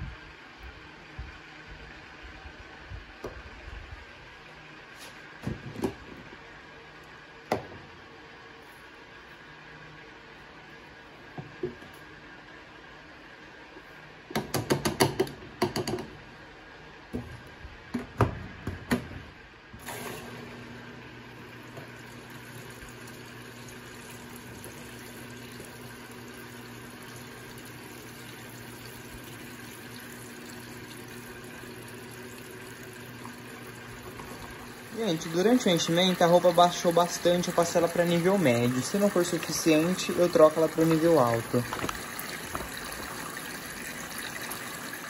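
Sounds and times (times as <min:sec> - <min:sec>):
water running into washing machine: 0:19.8 - 0:45.0.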